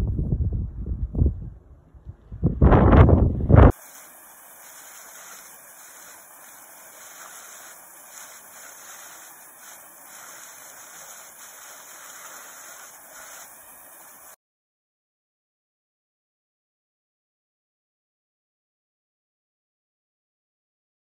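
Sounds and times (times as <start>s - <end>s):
waterfall rushing into pool: 3.7s - 14.4s.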